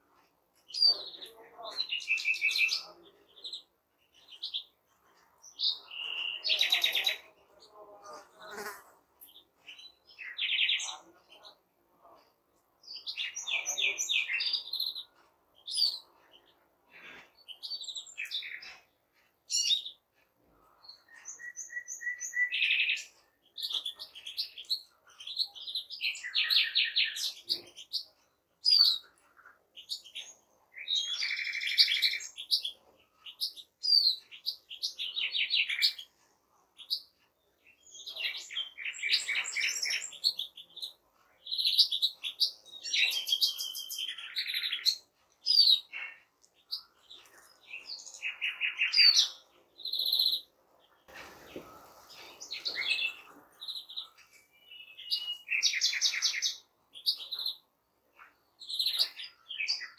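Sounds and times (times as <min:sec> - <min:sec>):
finches singing: 0:05.4 - 0:11.6, 0:36.8 - 0:57.6.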